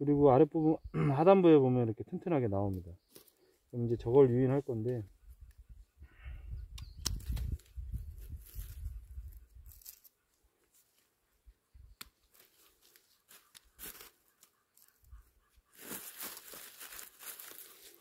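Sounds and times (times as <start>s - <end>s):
leaves rustling and tearing: 7.0s - 11.0s, 12.0s - 15.0s, 15.7s - 18.0s.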